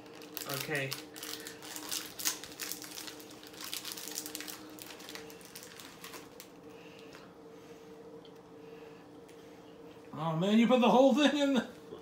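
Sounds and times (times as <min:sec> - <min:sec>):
candy wrapper crinkling: 0:00.0 - 0:07.1
faint steady hum: 0:00.0 - 0:12.0.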